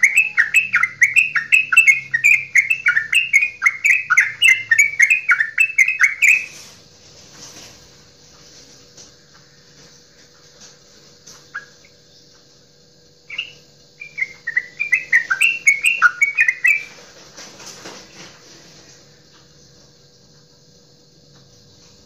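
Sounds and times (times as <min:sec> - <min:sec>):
bulbul singing: 0:00.0 - 0:06.8, 0:11.3 - 0:17.1.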